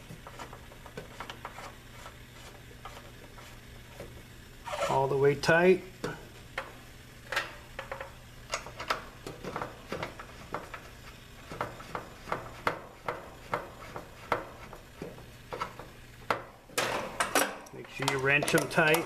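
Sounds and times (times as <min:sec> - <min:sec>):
small metallic clicks and clinks: 0:17.4 - 0:19.0.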